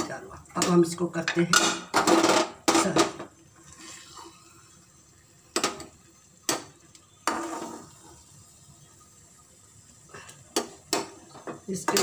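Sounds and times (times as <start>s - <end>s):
metal spatula clanking on pan: 10.5s - 12.0s.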